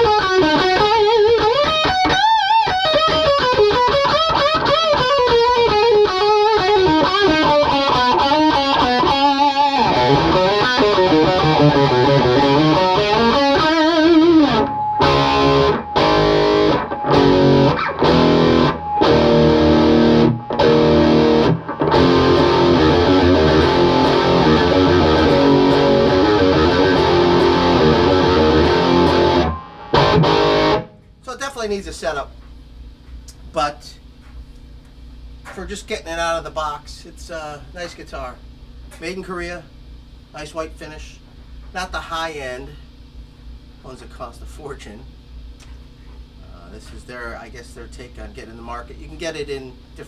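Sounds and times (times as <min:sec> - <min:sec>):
distorted electric guitar: 0:00.0 - 0:31.1.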